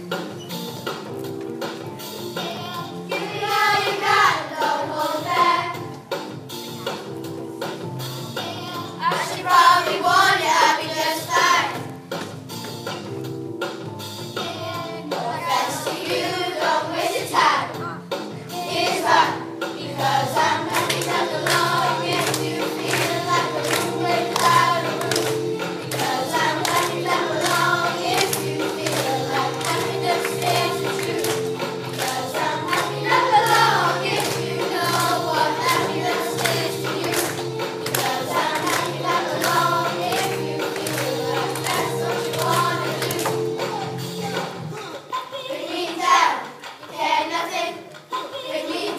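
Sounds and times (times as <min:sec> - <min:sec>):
several voices singing: 0:02.4 - 0:05.8, 0:08.7 - 0:11.8, 0:14.7 - 0:17.7, 0:18.5 - 0:43.7, 0:45.1 - 0:48.9
backing chords and beat: 0:20.2 - 0:42.8.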